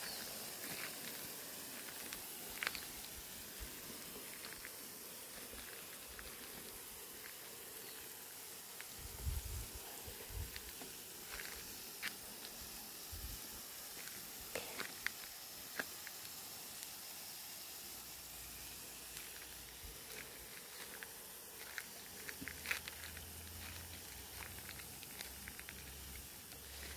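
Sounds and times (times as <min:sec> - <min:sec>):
low steady hiss: 0:00.0 - 0:26.9
light clicks and crackles: 0:21.6 - 0:26.9.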